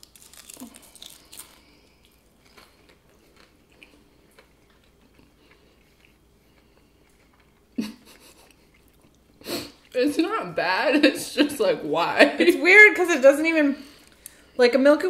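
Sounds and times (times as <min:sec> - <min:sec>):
quiet chewing with crunches: 0:00.0 - 0:10.0.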